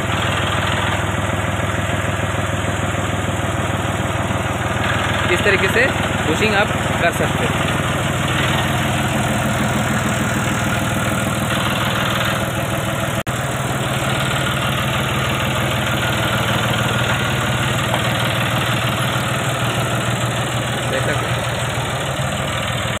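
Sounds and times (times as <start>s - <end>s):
tractor diesel engine idling: 0.0s - 23.0s.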